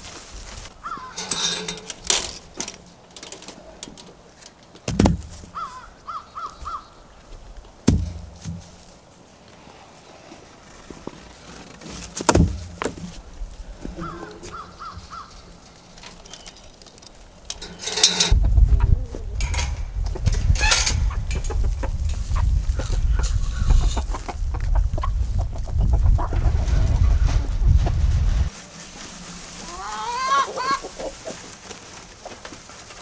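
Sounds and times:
chickens clucking: 0:13.8 - 0:16.5, 0:17.6 - 0:28.0, 0:29.5 - 0:32.6
low rumble: 0:18.3 - 0:23.8.

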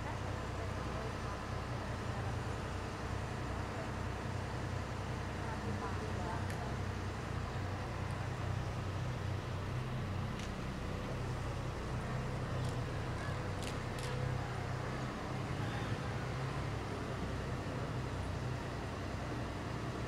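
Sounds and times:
low engine hum: 0:00.0 - 0:20.0.

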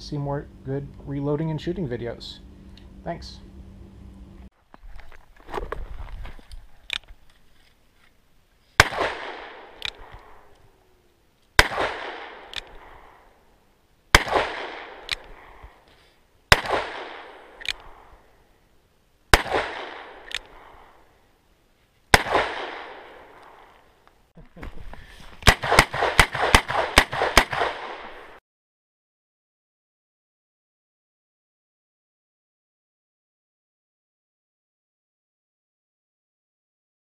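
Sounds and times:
revolver gunshots: 0:08.8 - 0:10.5, 0:11.6 - 0:13.3, 0:14.1 - 0:15.7, 0:16.5 - 0:18.2, 0:19.3 - 0:21.0, 0:22.1 - 0:23.7, 0:25.4 - 0:28.4.

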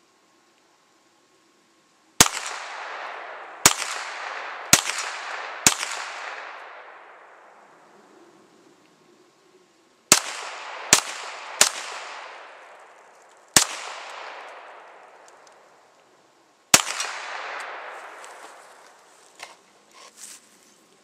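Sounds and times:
pistol shots echoing: 0:02.2 - 0:07.6, 0:10.1 - 0:15.4, 0:16.7 - 0:18.2.

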